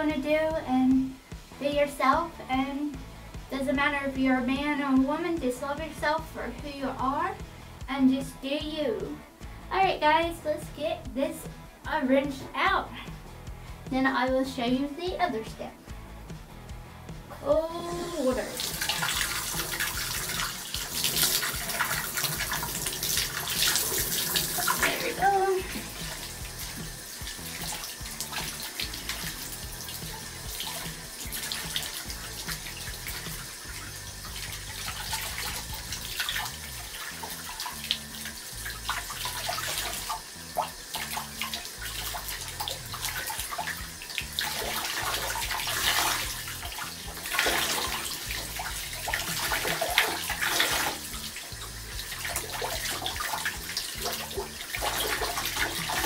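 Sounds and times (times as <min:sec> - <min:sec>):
faucet water rushing: 0:17.4 - 0:56.0
water splashes: 0:17.9 - 0:56.0.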